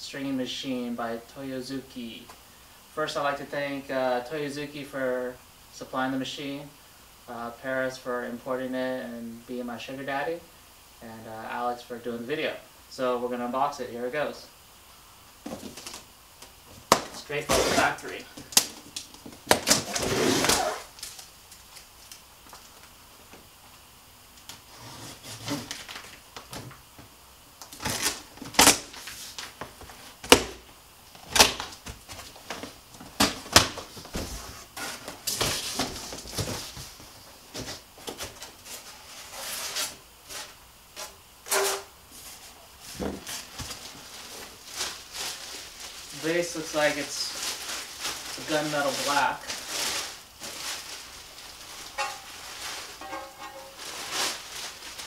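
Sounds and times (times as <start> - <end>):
packing material rustling: 15.4 - 16.1, 16.7 - 22.9, 27.7 - 55.0
plastic strapping snapping: 16.9 - 22.6, 31.2 - 32.6.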